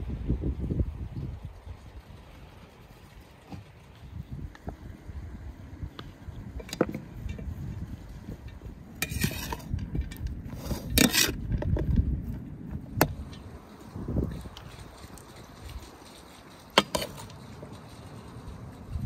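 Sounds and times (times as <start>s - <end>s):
wind rumble on microphone: 0.0s - 19.0s
metal spoon scraping a bowl: 9.0s - 11.4s.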